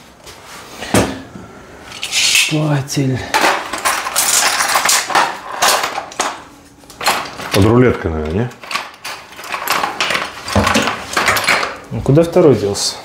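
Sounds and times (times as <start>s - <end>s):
metal tools rattling in toolbox: 3.2s - 11.9s.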